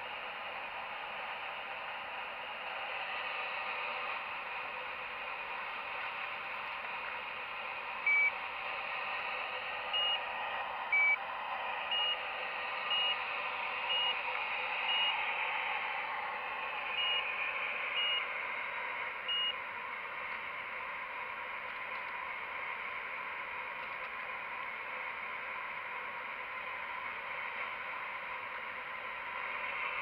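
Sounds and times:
electronic warning beeps: 0:08.1 - 0:08.4, 0:09.9 - 0:10.3, 0:10.9 - 0:11.2, 0:11.9 - 0:12.2, 0:12.9 - 0:14.2, 0:14.8 - 0:15.2, 0:16.8 - 0:18.4, 0:19.2 - 0:19.6.

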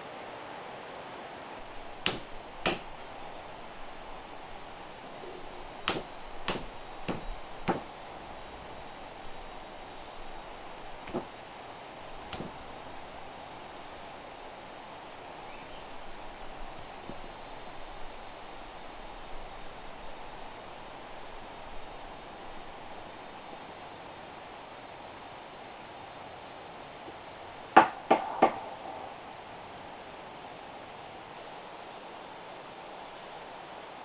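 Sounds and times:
high insect drone: 0:00.0 - 0:34.0
running water hiss: 0:00.0 - 0:34.0
hand tool knocking wood: 0:02.0 - 0:03.0, 0:05.8 - 0:07.9, 0:11.0 - 0:11.3, 0:12.3 - 0:12.6.

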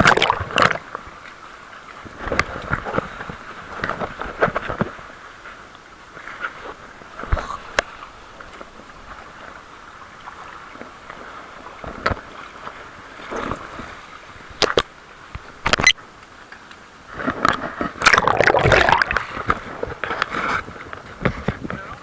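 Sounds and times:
seawater lapping around rocks: 0:00.0 - 0:22.0
water splashing against lens: 0:14.5 - 0:16.0, 0:17.1 - 0:21.6.

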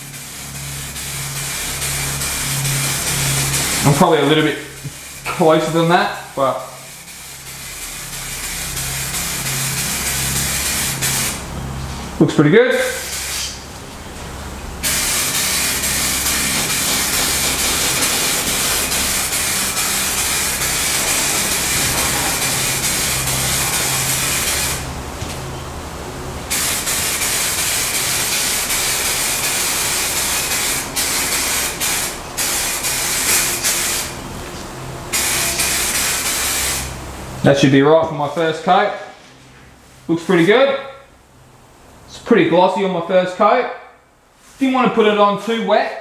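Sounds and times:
aerosol can spraying hiss: 0:12.8 - 0:13.6, 0:14.8 - 0:24.9, 0:26.5 - 0:34.2, 0:35.2 - 0:36.9.

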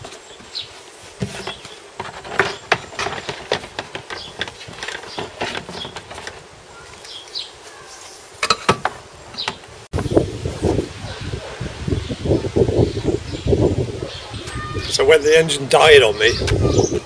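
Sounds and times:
plastic tub knocking and rustling: 0:01.2 - 0:06.5.

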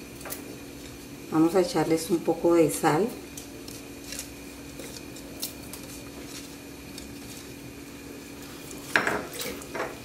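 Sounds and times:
steady hum: 0:00.0 - 0:10.0
wings shuffled in pot: 0:03.5 - 0:10.0.

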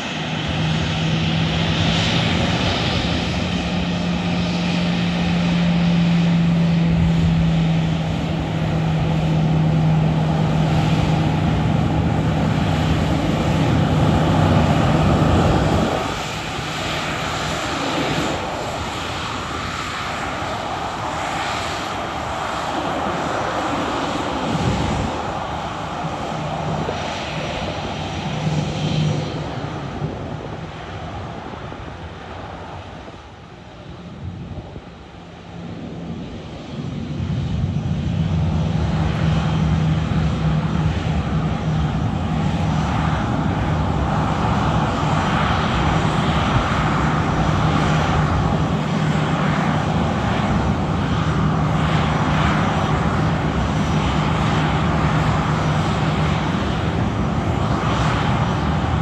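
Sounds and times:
jet engines roaring: 0:00.0 - 0:59.0.

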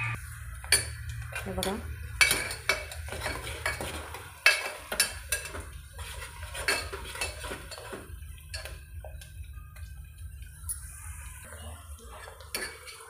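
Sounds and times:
metal spoon scraping a pot: 0:00.0 - 0:09.3, 0:11.4 - 0:13.0
food sauteing in oil: 0:00.2 - 0:13.0.

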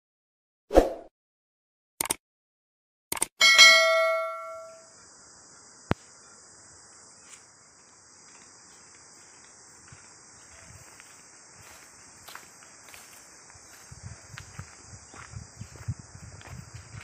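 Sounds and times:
sharp click: 0:02.0 - 0:02.2, 0:03.1 - 0:03.4
bell chime: 0:03.4 - 0:04.9
high-pitched insect chorus: 0:04.6 - 0:17.0
faint footsteps on grass: 0:06.8 - 0:17.0.

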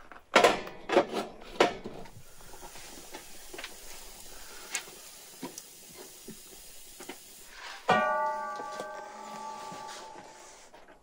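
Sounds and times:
wood fire crackling: 0:01.4 - 0:11.0
metal pot clanking on stovetop: 0:07.9 - 0:09.9.

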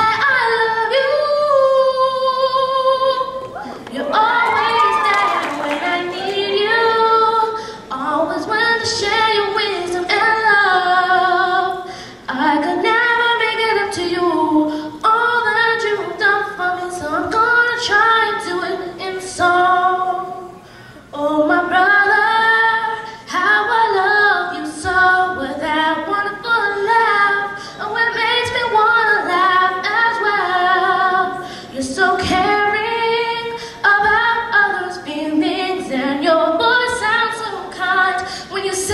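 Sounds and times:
girl singing a cappella: 0:00.0 - 0:38.9.

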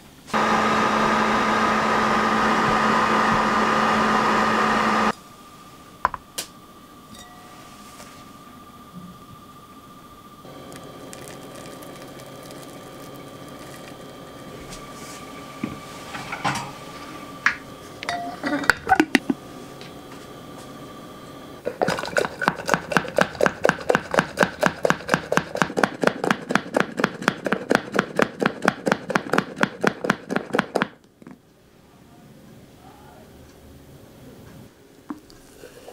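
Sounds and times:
milk frother plunger whipping: 0:10.5 - 0:14.6.

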